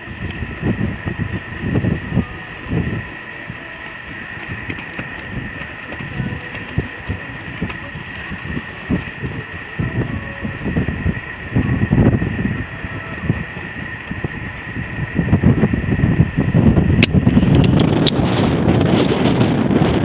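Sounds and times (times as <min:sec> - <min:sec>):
steady high tone: 0:00.0 - 0:17.0
wind rumbling on microphone: 0:00.0 - 0:20.0
horse hoofbeats cantering: 0:02.2 - 0:10.5.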